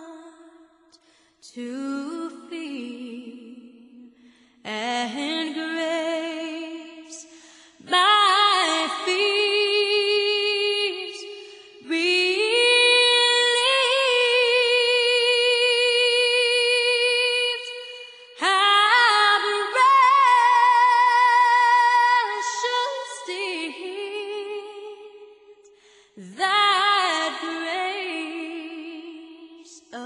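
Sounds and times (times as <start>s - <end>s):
woman singing slow song: 0.0s - 30.0s.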